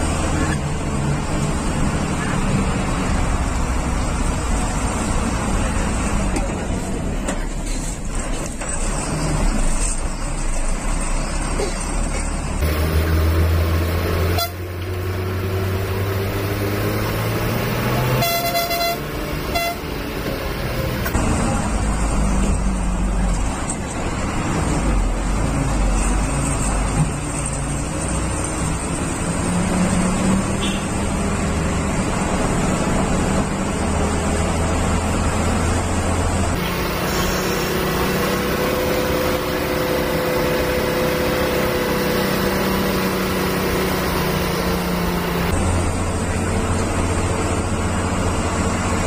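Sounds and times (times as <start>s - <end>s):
bus engine running: 0.0s - 49.0s
road noise inside bus: 0.0s - 49.0s
bus horn honking: 13.7s - 15.2s, 17.6s - 20.4s, 30.5s - 31.1s.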